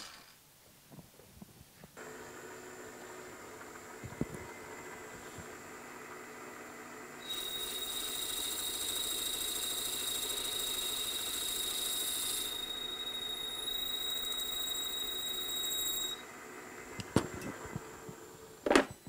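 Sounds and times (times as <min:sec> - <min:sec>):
cutter hissing through metal: 0:07.2 - 0:16.2
milling machine high-pitched whine: 0:07.2 - 0:16.3.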